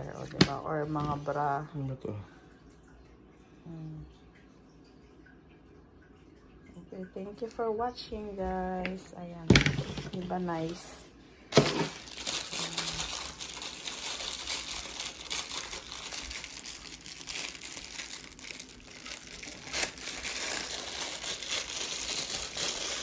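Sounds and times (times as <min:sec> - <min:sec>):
plastic crinkling and rustling: 0:11.5 - 0:23.0.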